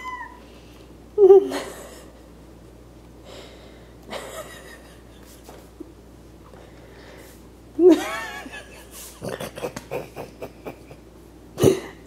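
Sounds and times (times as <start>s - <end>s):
person laughing: 1.2s - 2.2s, 4.1s - 5.5s, 7.8s - 12.0s.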